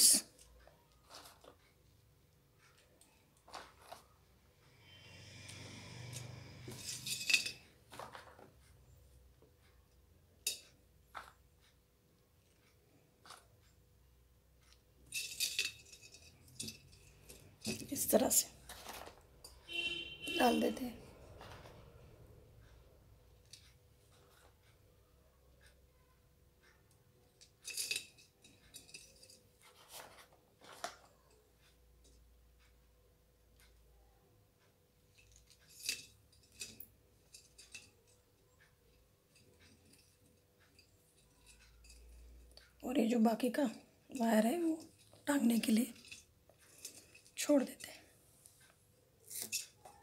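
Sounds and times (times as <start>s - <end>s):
beads clicking and clinking: 0.0s - 1.6s, 5.5s - 8.6s, 14.7s - 20.7s
scraping and rustling handling: 0.4s - 2.0s, 2.6s - 4.4s, 6.6s - 9.0s, 14.7s - 19.6s, 27.4s - 32.2s.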